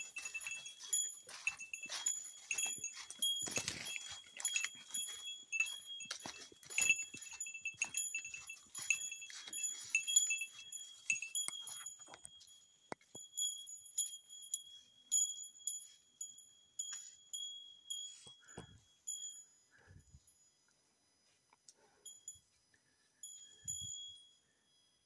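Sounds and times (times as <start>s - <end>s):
crunching footsteps: 0.0s - 13.2s
small bell jingling: 0.0s - 20.6s, 21.8s - 25.0s.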